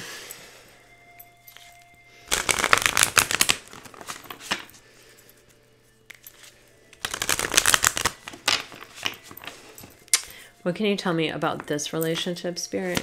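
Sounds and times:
cards shuffled by hand: 1.5 - 4.7, 6.1 - 10.0.

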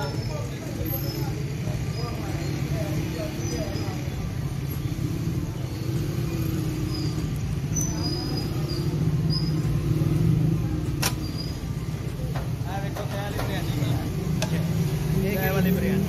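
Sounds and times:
faint voices: 0.0 - 16.0
street background rumble: 0.0 - 16.0
sharp click: 11.0 - 11.2.

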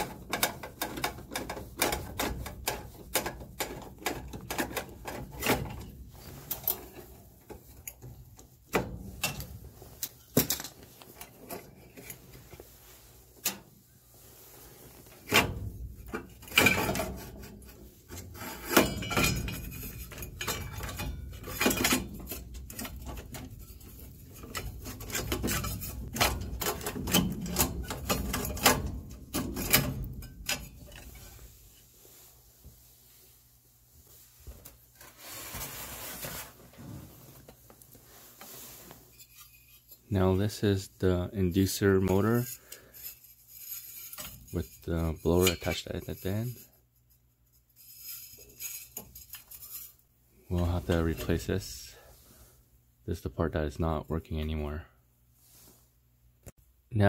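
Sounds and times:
metal parts scraping and clattering: 0.0 - 13.8, 14.6 - 31.9, 38.4 - 40.2, 41.6 - 52.1.

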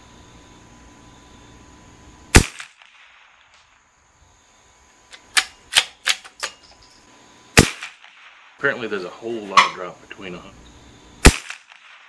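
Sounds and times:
rifle shot: 2.3 - 3.7, 7.6 - 8.6, 11.2 - 12.0.

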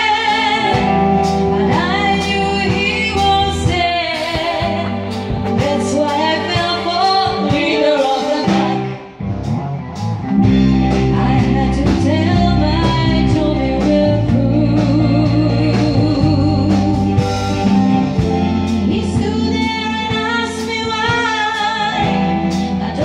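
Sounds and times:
female vocal group singing: 0.0 - 9.1
live band playing: 0.0 - 23.0.

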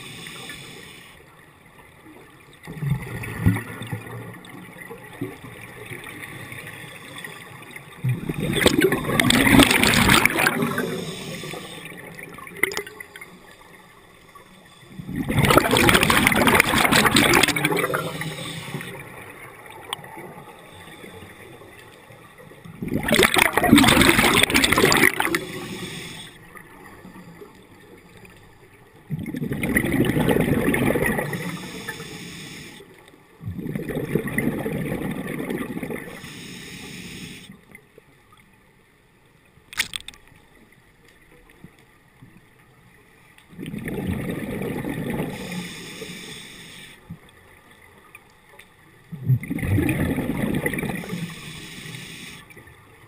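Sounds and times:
underwater breath bubbles gurgling: 0.0 - 1.4, 2.6 - 37.8, 43.5 - 47.6, 49.0 - 53.0
sharp click: 39.7 - 40.2.

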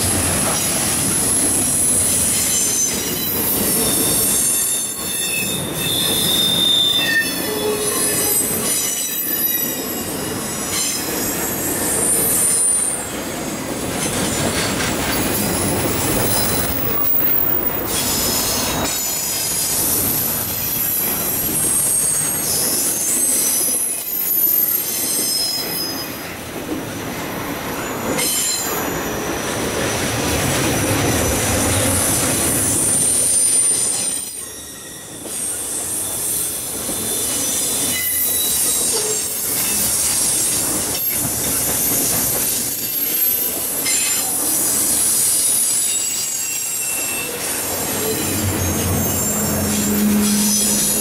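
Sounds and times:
high-pitched wheel squeals: 1.7 - 13.0, 32.7 - 40.5, 41.5 - 51.0
steel wheels rumbling over rails: 47.2 - 51.0.

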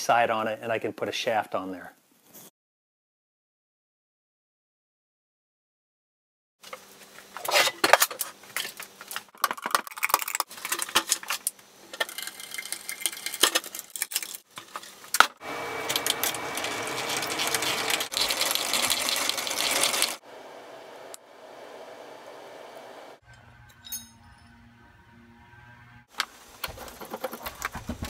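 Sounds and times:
drill bit grinding into metal: 15.4 - 18.3
hand drill clicking and scraping: 15.8 - 19.0.

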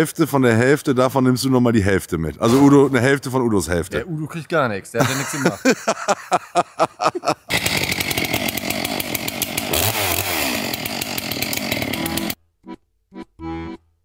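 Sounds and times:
chainsaw cutting log: 7.4 - 12.4
background music: 12.1 - 13.9.

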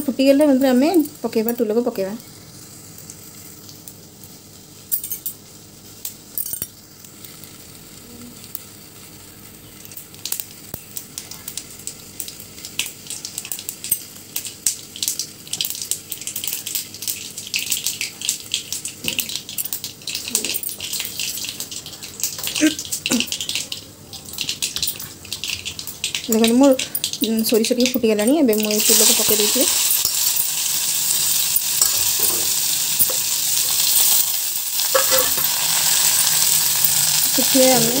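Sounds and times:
seeds popping in hot oil: 9.4 - 38.0.

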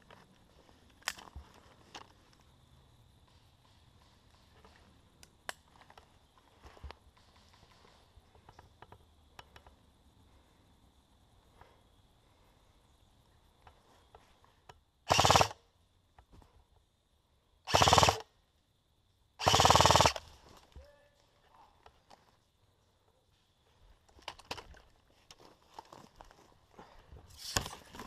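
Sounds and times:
airsoft gun full-auto bursts: 15.1 - 15.6, 17.7 - 18.3, 19.4 - 20.3.

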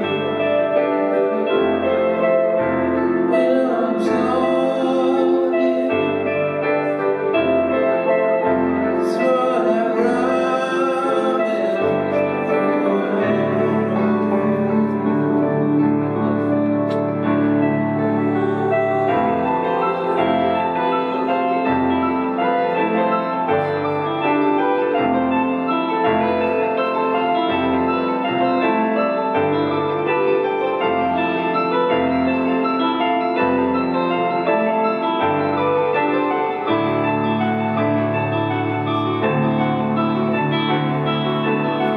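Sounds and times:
person singing: 0.0 - 32.5
piano chords: 0.0 - 41.9.

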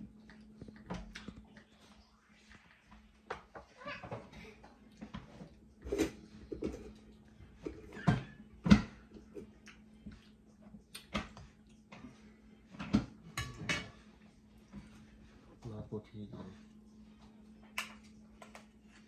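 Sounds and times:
chewing: 0.0 - 3.1
faint steady hum: 0.0 - 19.0.

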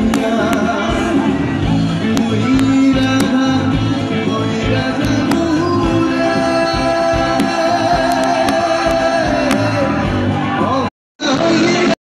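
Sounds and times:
folk-rock band with guitars: 0.0 - 12.0
person singing long notes: 2.0 - 10.1.

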